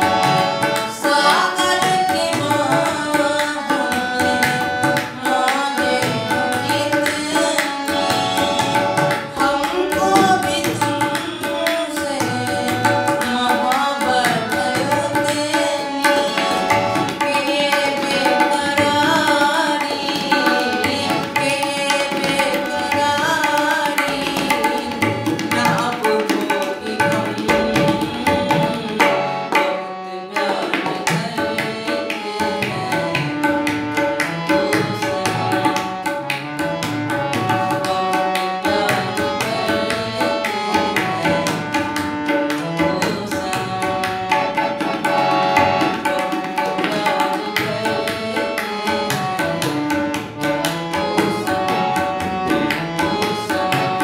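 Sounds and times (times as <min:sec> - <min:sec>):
harmonium melody: 0:00.0 - 0:54.0
tabla drums: 0:00.0 - 0:54.0
man singing: 0:09.4 - 0:16.0.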